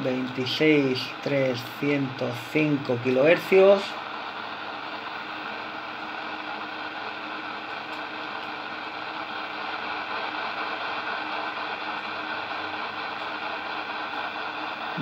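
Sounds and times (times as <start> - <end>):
radio static hiss: 0.0 - 5.0.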